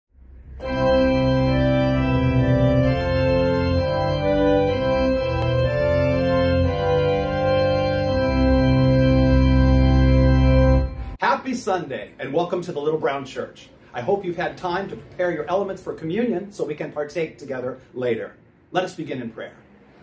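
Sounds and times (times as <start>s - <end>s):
organ chords: 0.2s - 12.0s.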